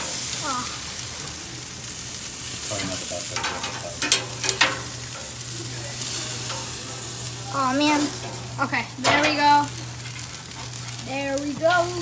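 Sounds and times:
meat sizzling on a grill: 0.0s - 12.0s
metal tongs clicking on grate: 3.3s - 10.8s.

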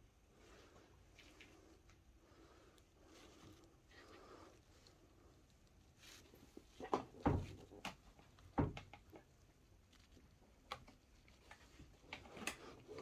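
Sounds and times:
hand knocking and rubbing rubber grip: 6.3s - 9.3s.

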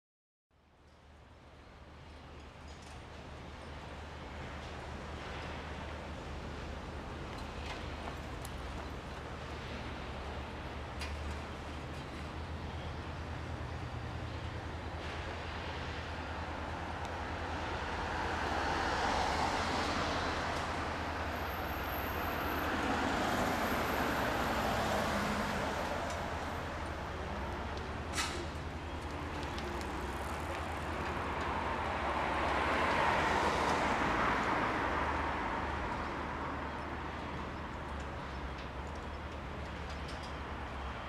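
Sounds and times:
low traffic rumble: 1.2s - 41.0s
vehicles passing: 4.0s - 41.0s.

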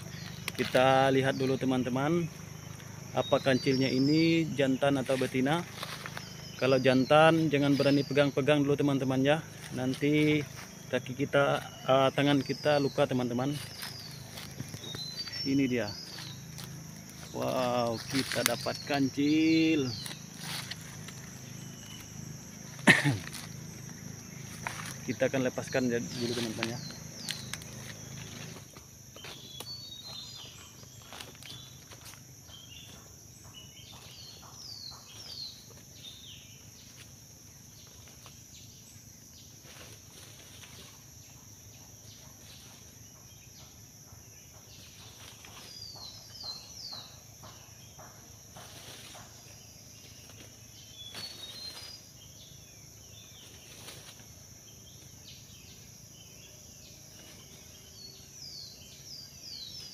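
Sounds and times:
rustling dry leaves and twigs: 0.0s - 8.3s, 9.0s - 32.4s, 39.5s - 41.2s, 48.4s - 52.2s, 53.2s - 55.1s
bird chirps: 0.0s - 37.0s, 41.2s - 54.0s
high insect drone: 0.0s - 59.9s.

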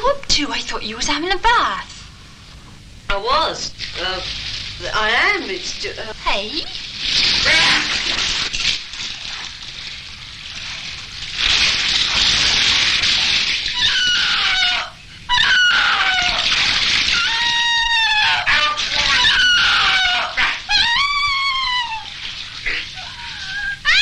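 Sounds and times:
bathwater splashing: 3.3s - 24.0s
high-pitched squealing calls: 13.7s - 24.0s.

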